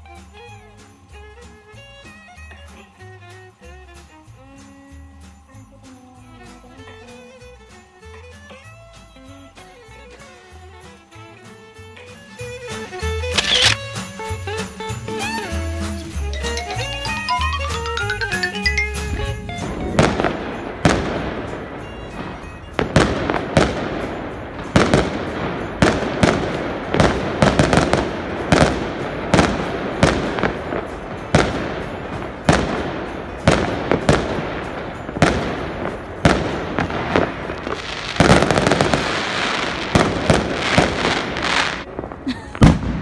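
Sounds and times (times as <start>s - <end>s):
fireworks bangs: 19.6s - 43.0s.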